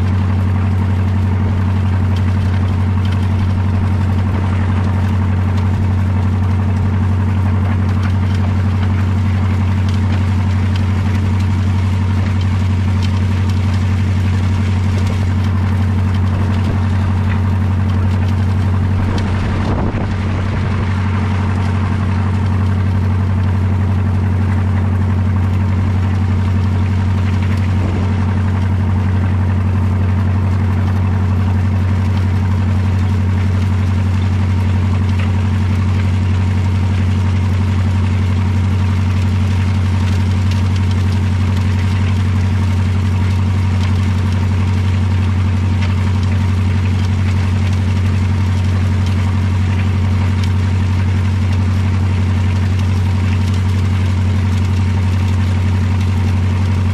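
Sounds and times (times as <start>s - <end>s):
tractor engine droning: 0.0s - 56.9s.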